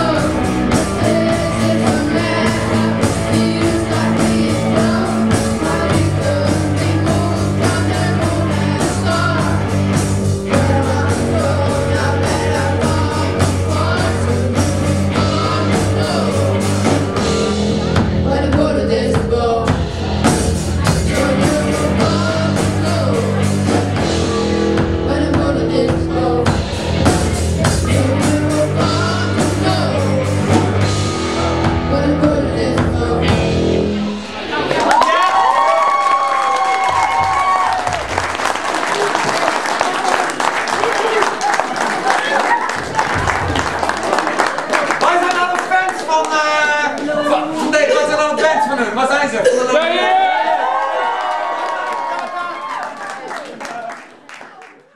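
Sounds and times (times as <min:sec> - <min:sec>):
sung vocals: 0:00.0 - 0:34.6
electric guitars: 0:00.0 - 0:46.0
drum kit: 0:00.0 - 0:46.1.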